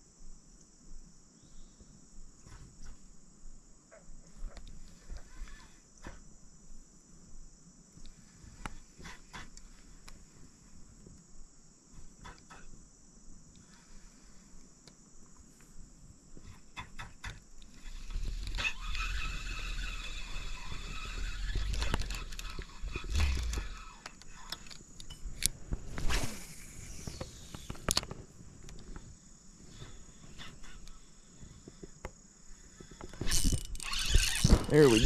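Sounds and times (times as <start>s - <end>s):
high insect drone: 0.0s - 35.0s
fishing reel clicks and rustles: 17.7s - 25.6s, 32.9s - 35.0s.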